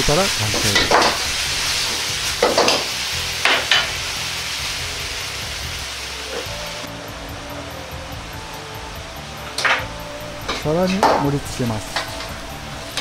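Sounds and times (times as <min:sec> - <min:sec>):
food sizzling in wok: 0:00.0 - 0:13.0
metal ladle scraping wok: 0:09.6 - 0:13.0.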